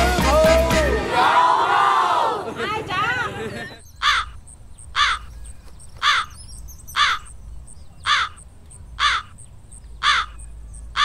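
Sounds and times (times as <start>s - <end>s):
crow cawing: 4.0s - 5.4s, 6.0s - 7.4s, 8.0s - 8.4s, 9.0s - 9.4s, 10.0s - 10.4s.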